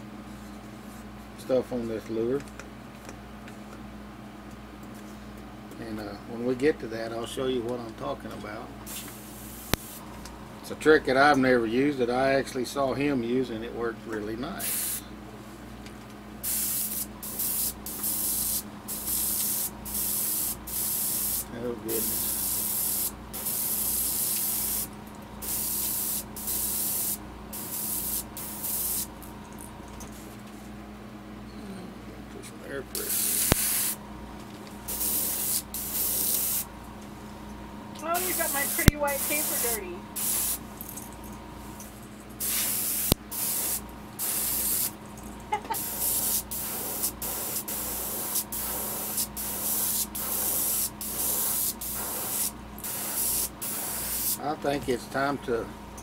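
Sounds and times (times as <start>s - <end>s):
steady low hum: 0.0s - 56.0s
airbrush spraying air hiss: 8.9s - 10.0s, 14.6s - 15.1s, 16.4s - 29.1s, 33.0s - 34.0s, 34.9s - 36.7s, 38.1s - 40.6s, 42.4s - 45.0s, 45.8s - 54.4s.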